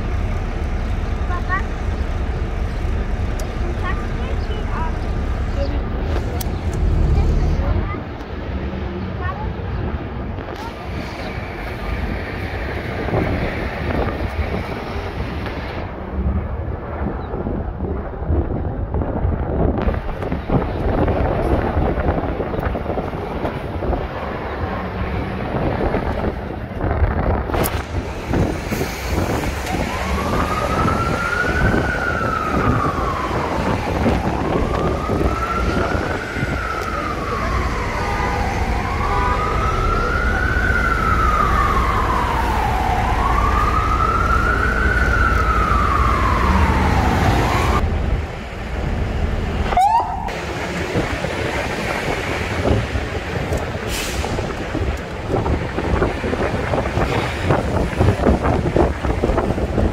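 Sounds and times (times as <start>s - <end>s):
low traffic rumble: 0.0s - 59.9s
wind on microphone: 9.2s - 59.9s
emergency vehicle siren wailing: 27.3s - 47.9s, 49.6s - 59.9s.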